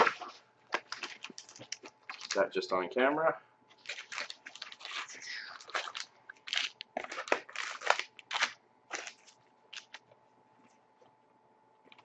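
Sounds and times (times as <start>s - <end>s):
foil packs crinkling: 0.0s - 2.6s, 3.8s - 10.1s.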